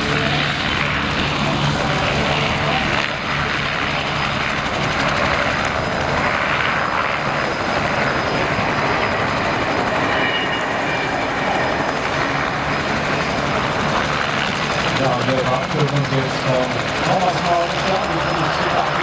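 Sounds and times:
helicopter engine and rotor: 0.0 - 19.0
thin high whine: 7.4 - 12.1.

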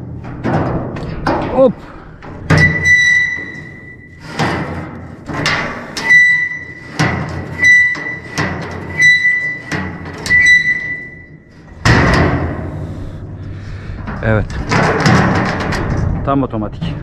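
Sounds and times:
ringing metallic knocks: 2.4 - 12.6.

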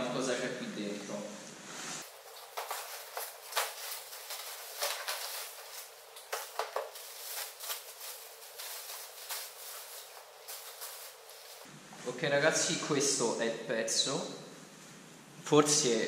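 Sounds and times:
bubble wrap and cardboard crinkling: 2.0 - 11.7.

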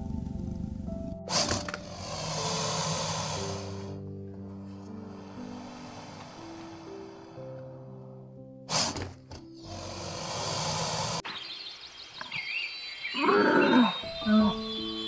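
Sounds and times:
soft background music: 0.0 - 11.2, 13.1 - 15.0
hissing burst: 1.3 - 4.0, 5.1 - 7.4, 8.7 - 11.5
birds chirping: 9.6 - 15.0.

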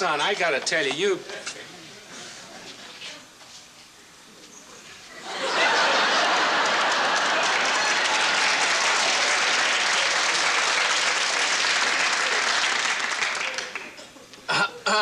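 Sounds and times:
audience applauding: 5.5 - 14.0.

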